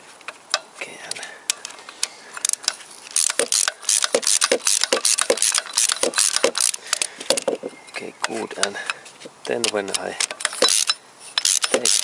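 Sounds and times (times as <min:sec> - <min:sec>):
ratchet wrench clicking: 0:02.4 - 0:07.5, 0:09.6 - 0:12.0.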